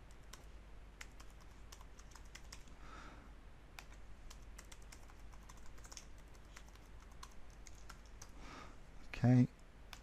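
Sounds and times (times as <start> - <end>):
computer keyboard key clicks: 3.8 - 8.3.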